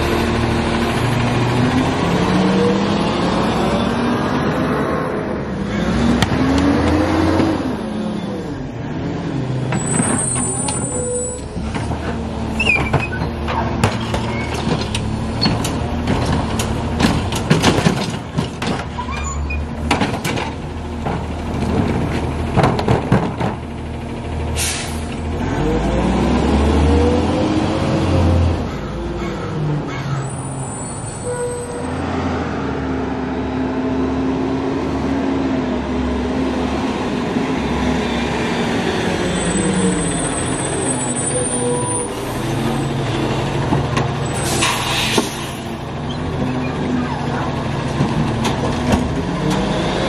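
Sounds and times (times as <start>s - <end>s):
garbage truck engine running: 6.2s - 29.7s
sharp knocks and bangs: 12.8s - 19.0s
air-brake hiss: 24.6s - 25.1s, 44.4s - 45.7s.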